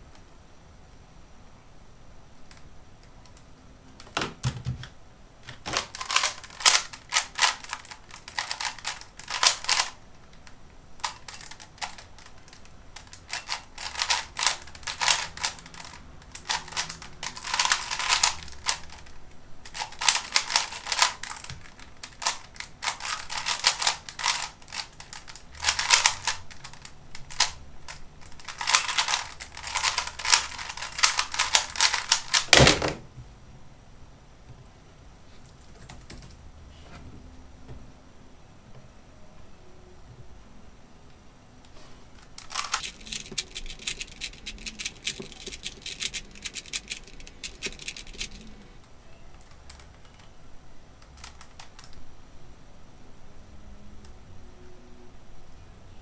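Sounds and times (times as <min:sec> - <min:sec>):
puzzle cube clicking: 0:05.7 - 0:32.7, 0:42.3 - 0:48.6
cube thumping down: 0:28.5 - 0:33.1.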